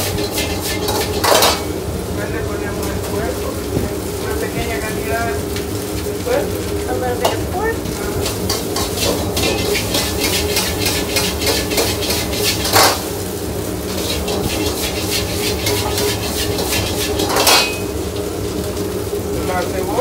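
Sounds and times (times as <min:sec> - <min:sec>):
metal utensil scraping a wok: 0:00.0 - 0:01.8, 0:07.9 - 0:13.2, 0:13.8 - 0:18.0.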